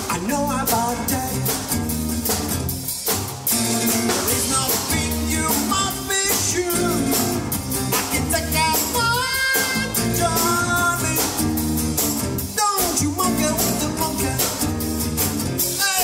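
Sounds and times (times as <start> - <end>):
rock song with lead vocal: 0.0 - 16.0.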